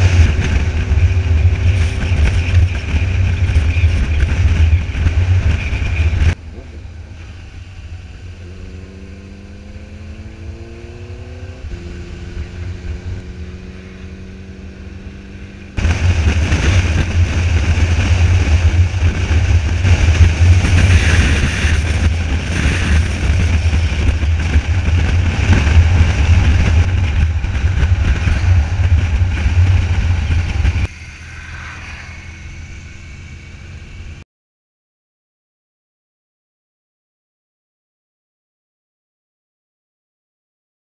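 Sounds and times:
wind rush on microphone: 0.0 - 6.4, 7.0 - 34.2
motorcycle engine accelerating: 0.0 - 34.2.

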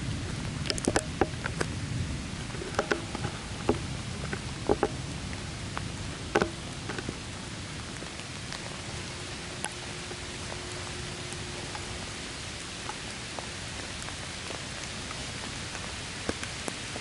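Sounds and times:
steady rain: 0.0 - 17.0
drops ticking on surface: 0.6 - 1.7, 2.6 - 5.0, 5.8 - 7.2.

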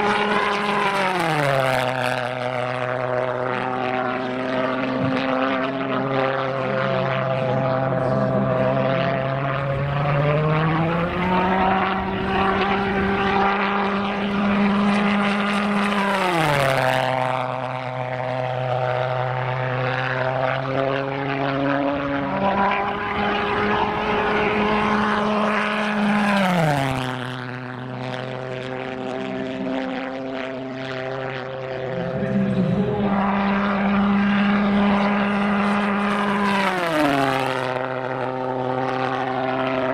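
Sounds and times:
model pulse jet engine drone: 0.0 - 39.9.

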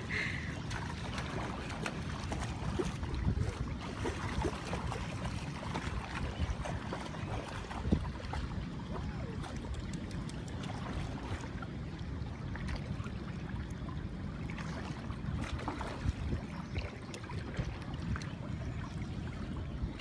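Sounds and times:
river water splashing and trickling: 0.0 - 20.0
small sharp splashes: 0.4 - 11.7, 14.4 - 18.4.

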